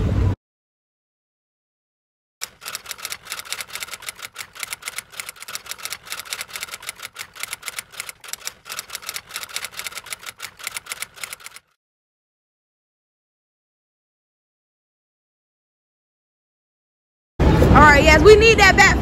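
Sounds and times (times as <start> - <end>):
typewriter key clicks: 2.4 - 11.6.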